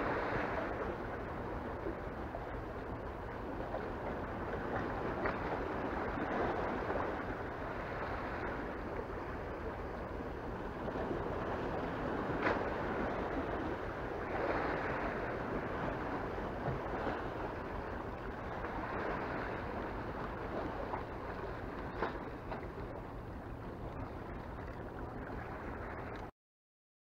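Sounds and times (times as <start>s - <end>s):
sea waves washing against rocks: 0.0s - 26.3s
waves splashing: 0.0s - 26.3s.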